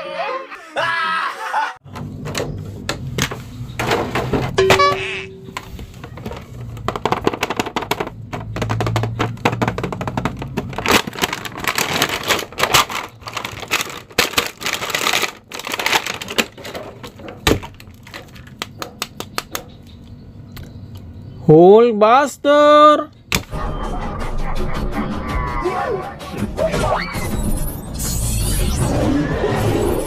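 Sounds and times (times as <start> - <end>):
cardboard box rustling: 5.7 - 18.5
plastic packaging crinkling: 6.1 - 19.3.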